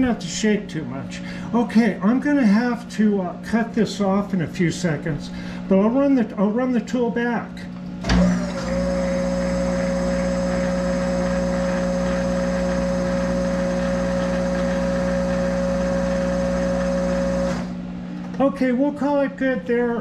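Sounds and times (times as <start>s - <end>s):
lathe running with whine and hum: 8.0s - 17.9s.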